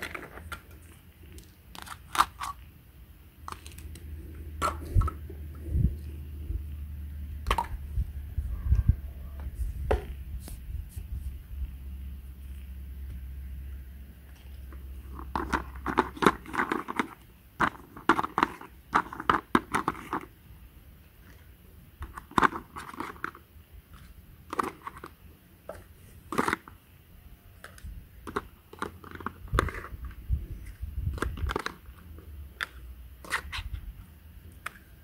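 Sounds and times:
plastic toy pieces clacking: 0.0s - 2.6s.

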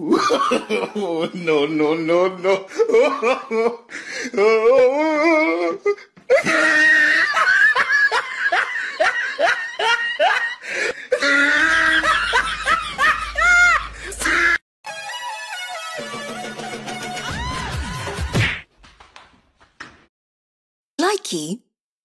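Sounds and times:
person laughing hard: 0.0s - 1.8s, 2.4s - 14.6s.

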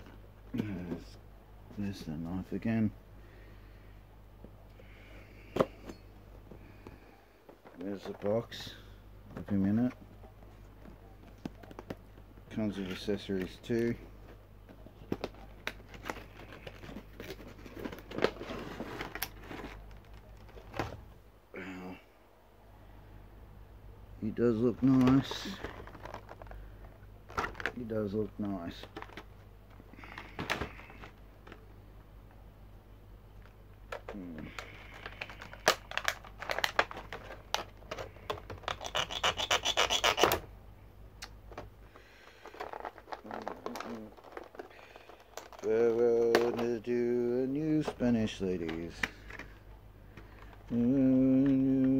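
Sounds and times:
plastic packaging clicks and crinkling: 11.2s - 21.0s, 24.8s - 31.7s, 33.4s - 40.4s, 41.2s - 46.9s
knife rasping through plastic: 38.2s - 40.4s.

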